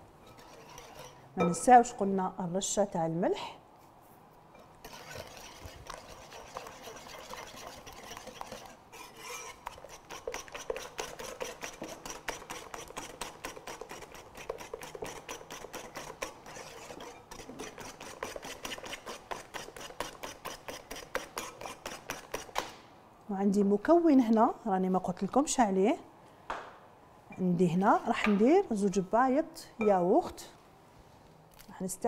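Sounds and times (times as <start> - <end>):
wire whisk scraping a bowl: 0.2 - 1.3, 4.6 - 22.5.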